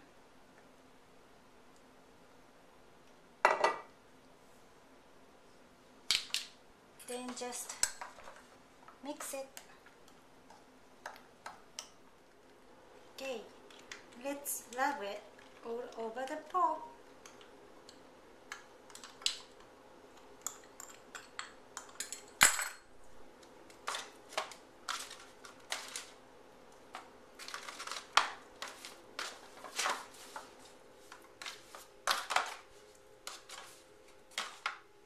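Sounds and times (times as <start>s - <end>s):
foil pan crinkling and rattling: 23.8s - 26.2s, 27.4s - 30.5s.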